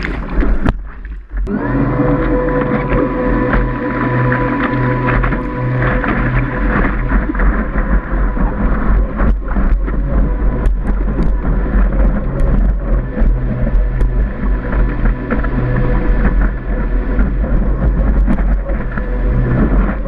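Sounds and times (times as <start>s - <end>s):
seawater rushing and splashing: 0.0s - 20.0s
steady low hum: 0.0s - 20.0s
wind buffeting microphone: 0.0s - 20.0s.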